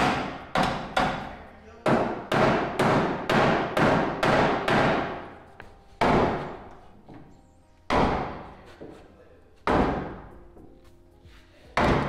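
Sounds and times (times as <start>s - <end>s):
hammer striking sheet metal: 0.0s - 1.3s, 1.9s - 5.3s.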